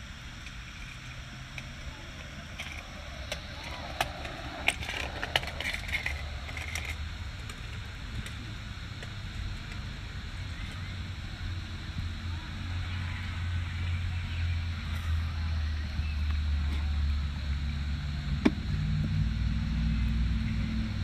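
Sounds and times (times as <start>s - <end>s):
distant voices: 0.0s - 21.0s
steady low rumble: 0.0s - 21.0s.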